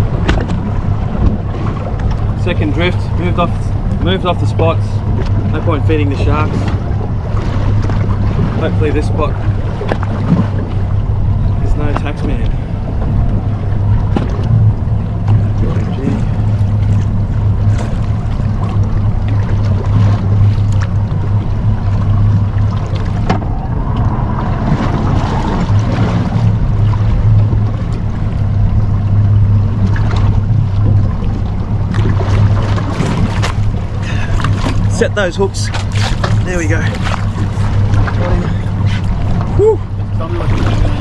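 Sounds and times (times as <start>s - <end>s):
boat motor humming: 0.0s - 41.0s
sea noise: 0.0s - 41.0s
wind: 0.0s - 41.0s.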